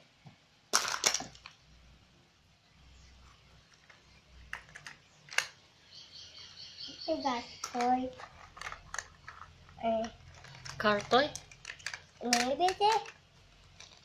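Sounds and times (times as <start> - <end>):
plastic capsule clicks: 7.6 - 13.2.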